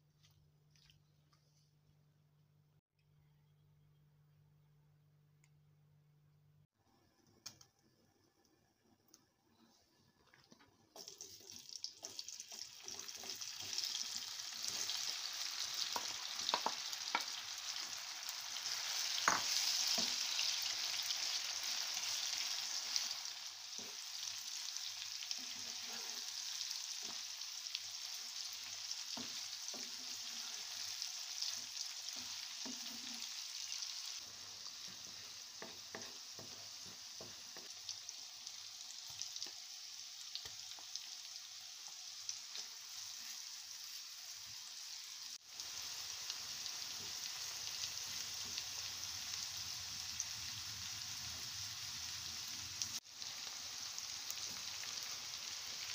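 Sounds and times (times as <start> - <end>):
okra sizzling in hot oil: 8.2 - 55.9
wooden spatula knocking: 34.9 - 37.7.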